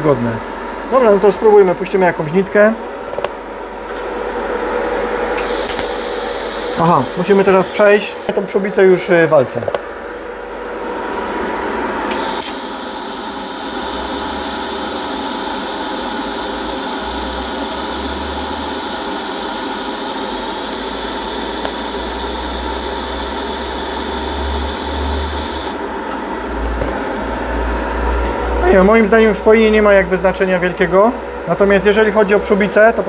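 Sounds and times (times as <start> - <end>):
welding arc hissing: 5.4 - 8.4, 12.1 - 25.8.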